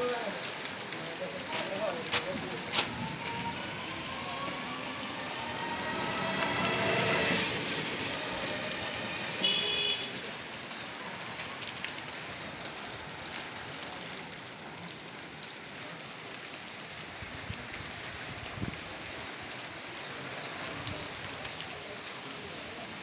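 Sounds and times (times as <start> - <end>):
rain: 0.0 - 23.0
wind: 0.0 - 23.0.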